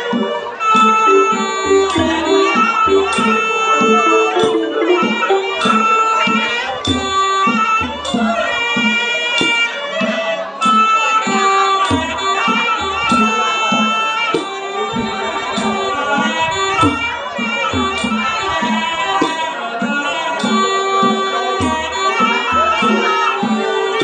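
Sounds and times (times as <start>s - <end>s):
sharp percussion strokes: 0.7s - 9.6s
reedy oboe melody: 0.8s - 6.7s
xylophone mallet notes: 0.9s - 6.4s
low drum thumps: 1.3s - 7.1s.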